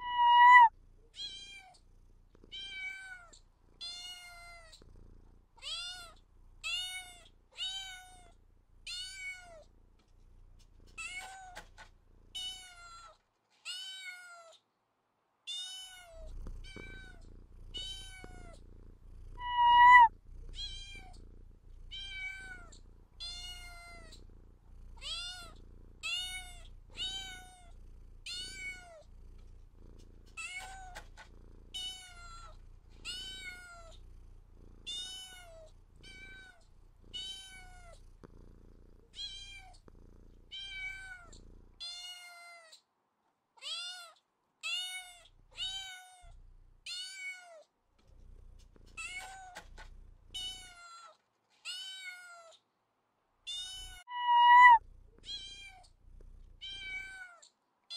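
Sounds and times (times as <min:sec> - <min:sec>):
cat meowing: 0:00.0 - 0:01.7, 0:19.4 - 0:21.1, 0:53.5 - 0:55.8
faint low hum: 0:00.0 - 0:14.5, 0:15.5 - 0:42.5, 0:48.0 - 0:51.1, 0:53.4 - 0:57.9.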